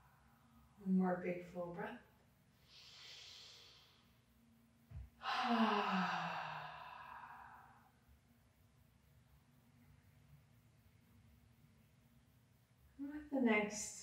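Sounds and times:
woman inhaling deeply: 0:02.6 - 0:04.1, 0:05.2 - 0:07.9
woman sighing: 0:05.2 - 0:07.8.

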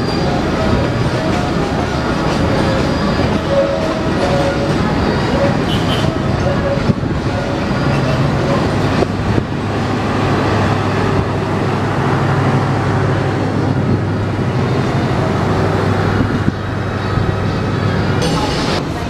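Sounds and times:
traffic engine hum: 0:00.0 - 0:19.0.

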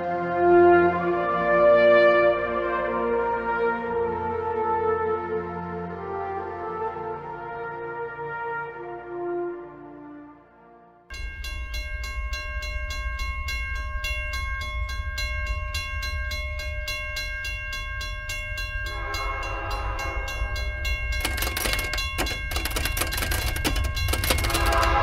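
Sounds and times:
pulsing ringing tone: 0:11.1 - 0:25.0
train rumble: 0:11.1 - 0:25.0
rattling clatter: 0:20.6 - 0:25.0.

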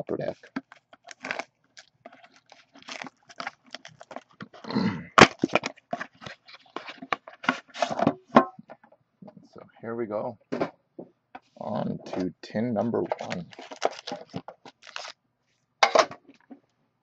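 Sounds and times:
cardboard box tearing: 0:01.1 - 0:01.5, 0:02.3 - 0:04.2, 0:13.2 - 0:15.1.

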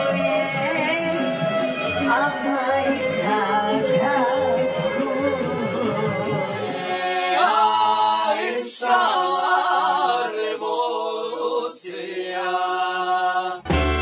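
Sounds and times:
choir singing a cappella: 0:00.0 - 0:13.7.

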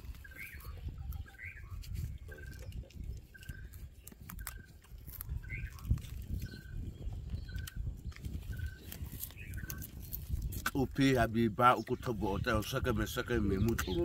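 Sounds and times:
sharp clicks: 0:07.3 - 0:10.0.

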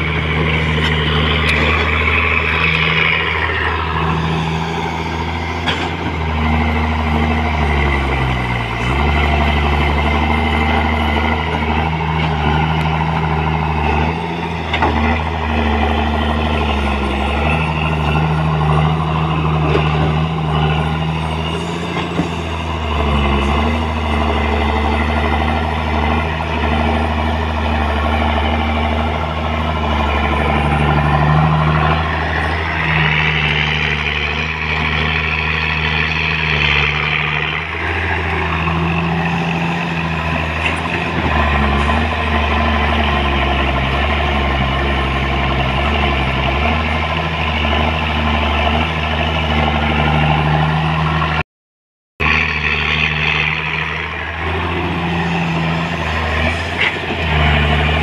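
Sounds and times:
excavator diesel engine running: 0:00.0 - 0:51.4, 0:52.2 - 0:58.0.

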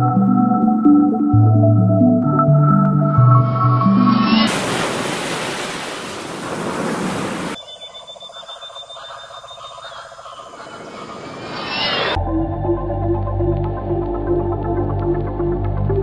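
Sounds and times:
ocean waves: 0:04.0 - 0:07.6, 0:10.3 - 0:12.2.

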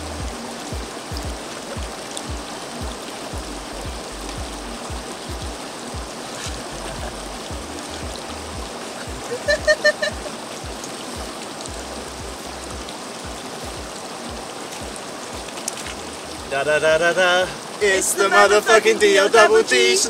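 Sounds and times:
background music with bass: 0:00.0 - 0:16.6
stream rushing over stones: 0:00.0 - 0:20.0
person calling out: 0:17.0 - 0:20.0.

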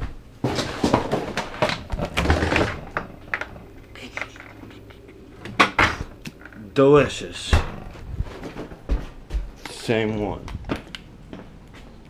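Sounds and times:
kitchen items knocking and clinking: 0:00.4 - 0:04.6.

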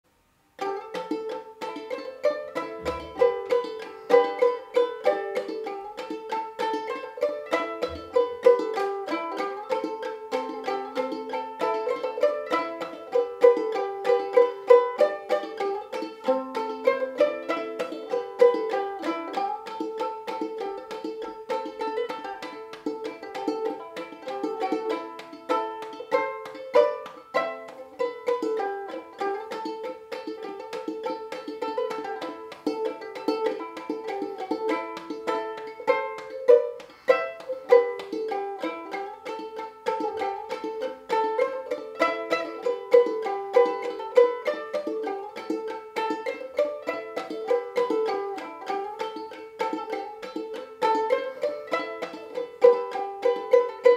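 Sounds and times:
banjo ukulele plucked notes: 0:00.2 - 0:53.9.

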